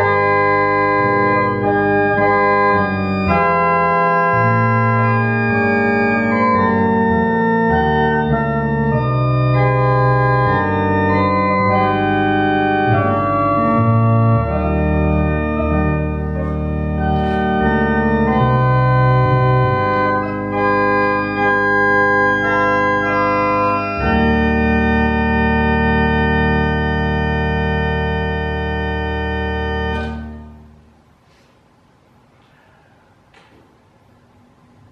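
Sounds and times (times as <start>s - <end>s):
church organ playing hymn chords: 0.0s - 31.1s.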